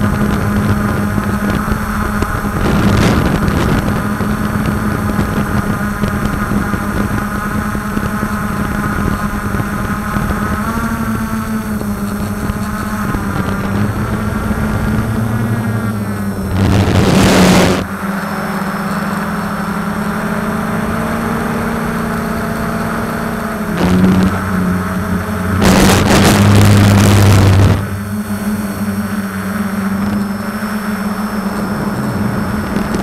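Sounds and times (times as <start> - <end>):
wind noise rush: 0.0 - 18.2, 19.8 - 33.0
drone propellers humming: 0.0 - 33.0.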